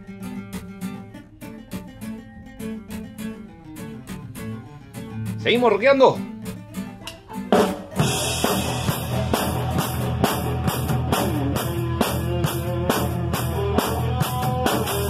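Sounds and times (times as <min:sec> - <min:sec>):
guitar notes: 0:00.0 - 0:15.0
rock band playing: 0:06.4 - 0:15.0
drum kit with cymbals: 0:07.5 - 0:15.0
cymbal crash: 0:08.0 - 0:11.5.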